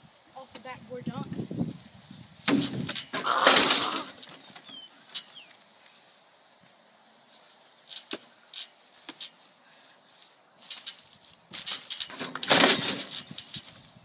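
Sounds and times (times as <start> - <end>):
trampoline springs clicking: 2.4 - 5.7, 7.8 - 9.6, 10.6 - 14.0.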